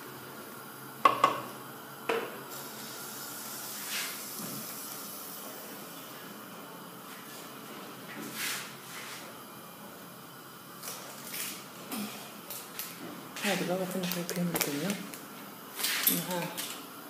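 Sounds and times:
gas burner hissing: 0.0 - 9.6.

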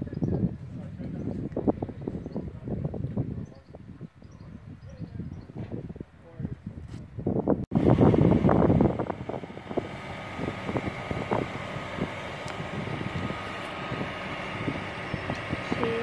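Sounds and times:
wind on microphone: 0.0 - 16.0
steady hum: 7.7 - 16.0.

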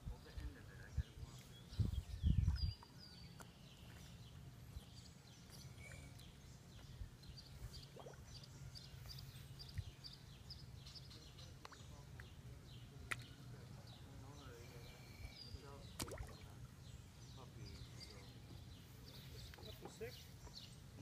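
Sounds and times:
faint bird chirps: 0.2 - 12.3.

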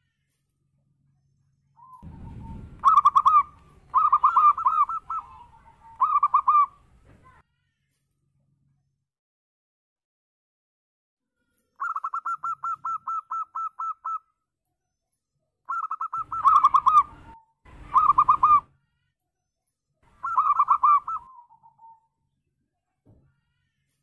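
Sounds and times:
dove cooing: 1.8 - 6.8, 11.8 - 14.2, 15.7 - 18.7, 20.2 - 22.0.

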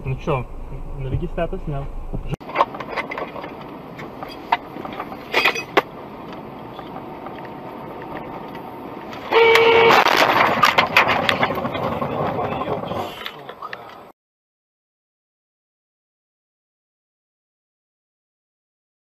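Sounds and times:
car road noise: 0.0 - 14.1
car horn: 9.2 - 10.2
sharp bangs: 9.3 - 12.7.

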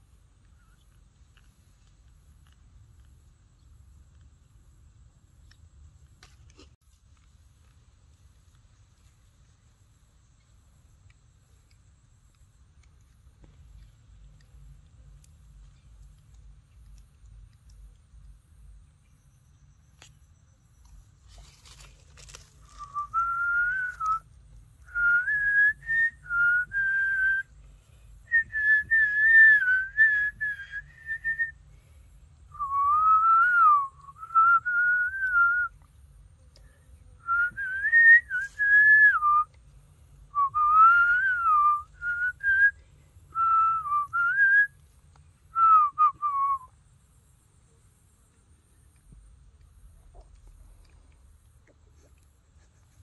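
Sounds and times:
person whistling a slow tune: 22.6 - 27.5, 28.3 - 31.6, 32.5 - 35.9, 37.2 - 39.6, 40.3 - 44.8, 45.5 - 46.7.

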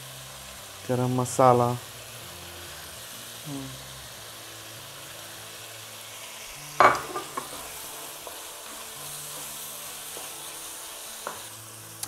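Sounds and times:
vegetables sizzling in a frying pan: 0.0 - 12.0
wooden spatula stirring: 7.0 - 11.5.

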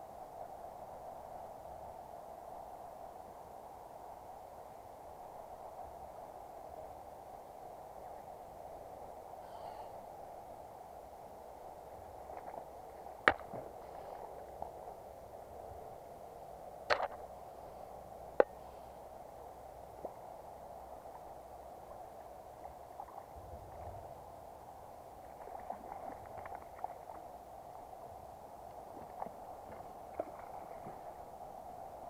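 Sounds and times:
river water flowing: 0.0 - 32.0
faint ticks: 18.4 - 18.6.

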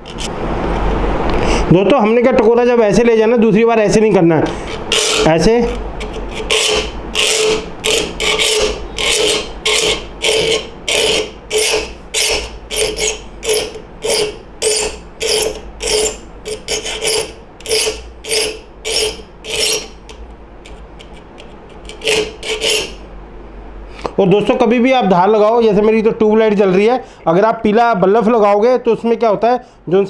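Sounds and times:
file rasping on saw teeth: 4.4 - 23.0.

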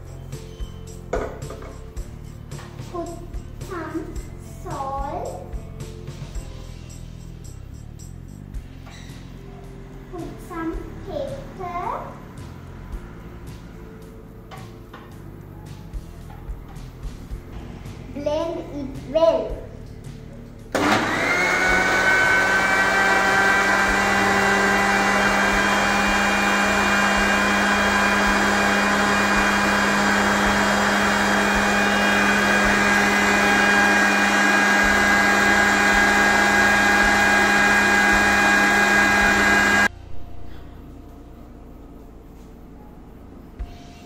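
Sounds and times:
blender motor running: 20.8 - 39.9.

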